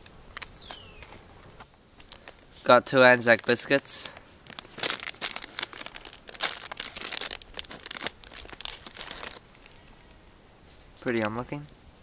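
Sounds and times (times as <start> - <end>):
biscuit packet crinkling and tearing: 2.0 - 2.5, 3.1 - 10.1.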